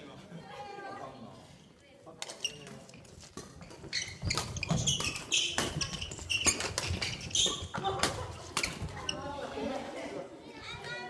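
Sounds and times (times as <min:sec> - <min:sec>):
shoe squeaks: 0:02.2 - 0:09.4
rackets striking shuttlecock: 0:03.3 - 0:08.9.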